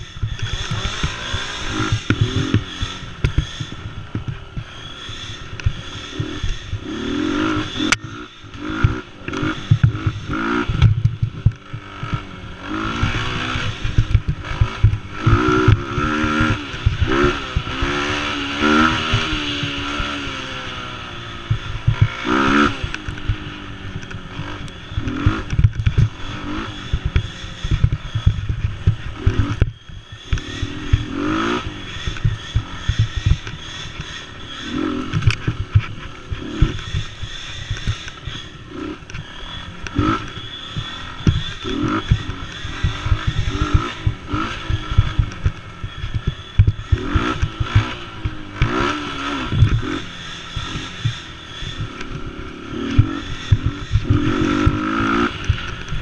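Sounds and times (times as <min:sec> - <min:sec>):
small quad engine revving: 0:00.0 - 0:56.0.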